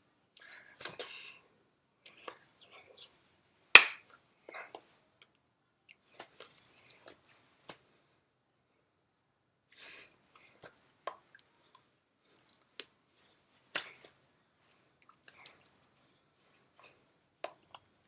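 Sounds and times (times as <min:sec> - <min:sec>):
hands tapping and slapping: 0:03.8 - 0:04.1.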